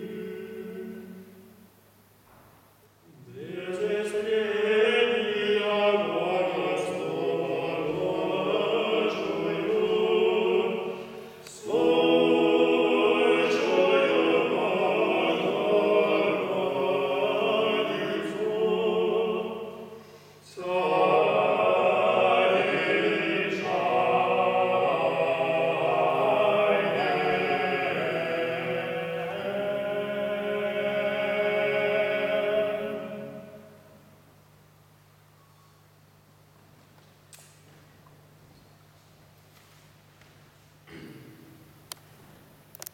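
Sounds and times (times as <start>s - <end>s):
male choir chanting: 0.0s - 1.3s, 3.2s - 33.8s.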